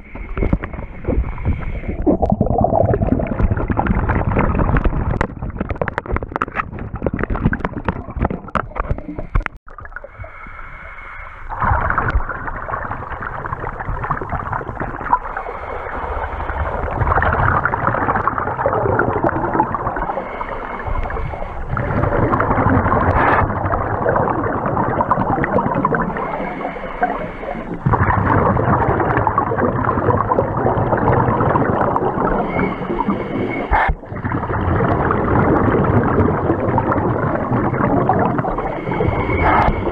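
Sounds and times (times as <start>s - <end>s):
underwater regulator bubbles: 0.0s - 10.5s, 11.5s - 39.9s.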